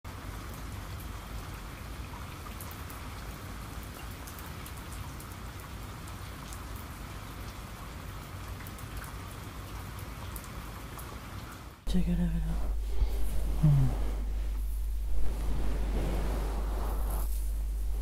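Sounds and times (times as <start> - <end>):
steady rain falling: 0.0 - 18.0
raindrops ticking close by: 0.1 - 11.9.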